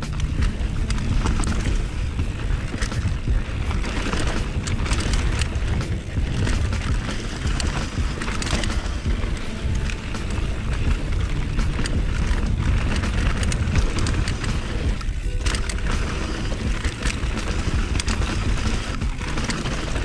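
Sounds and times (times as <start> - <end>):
bike clicks and rattles: 0.0 - 20.0
wind buffeting camera: 0.0 - 20.0.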